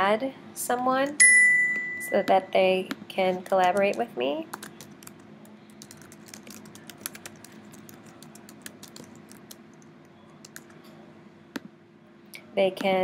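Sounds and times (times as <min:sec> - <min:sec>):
faint steady hum: 0:00.0 - 0:13.0
computer keyboard typing: 0:03.4 - 0:10.8.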